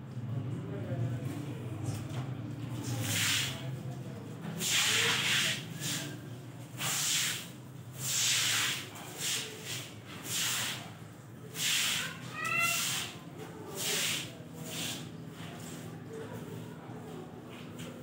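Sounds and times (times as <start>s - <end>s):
broom swishing water on concrete: 2.8s - 16.9s.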